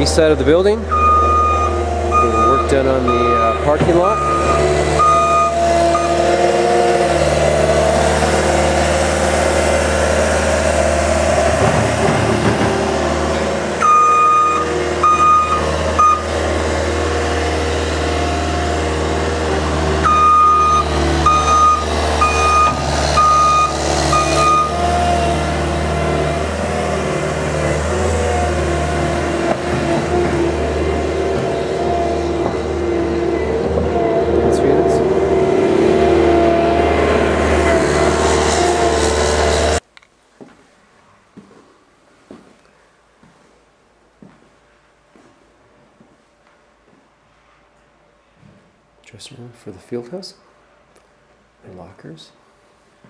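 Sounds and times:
heavy machine engine running: 0:00.0 - 0:39.8
backup alarm beeping: 0:00.9 - 0:06.3, 0:13.8 - 0:16.3, 0:20.0 - 0:24.8.

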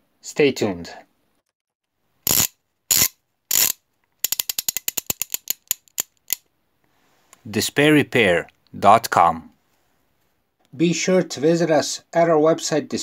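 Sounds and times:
sharp ratchet-like clicks: 0:02.3 - 0:06.4.

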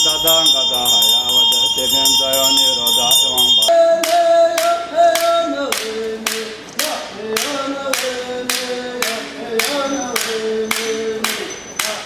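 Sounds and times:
wooden clapper stick beats: 0:00.0 - 0:04.2
man chanting in long notes: 0:00.0 - 0:06.2.

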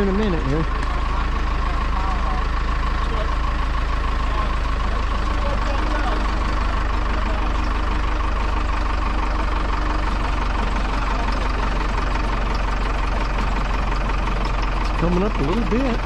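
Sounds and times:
forklift engine running: 0:00.0 - 0:16.0.

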